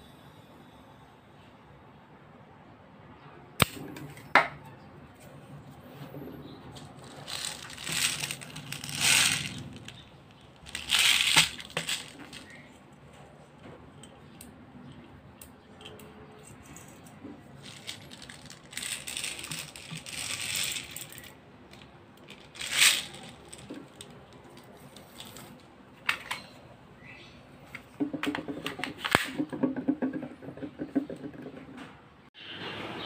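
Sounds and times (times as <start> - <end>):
plastic pellets clicking and rattling: 7.0 - 12.7, 17.6 - 25.6.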